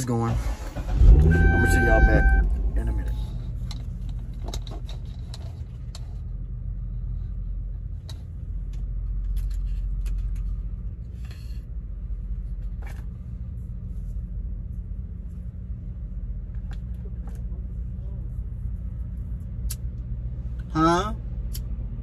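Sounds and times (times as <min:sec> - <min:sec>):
truck engine idling: 0:00.0 - 0:10.8.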